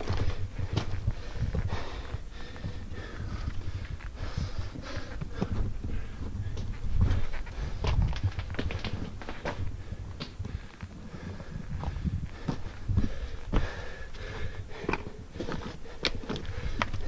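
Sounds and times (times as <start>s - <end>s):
person breathing hard: 0.0s - 8.1s, 9.4s - 17.0s
low microphone rumble: 0.0s - 17.0s
boots and hands scraping rock: 14.8s - 17.0s.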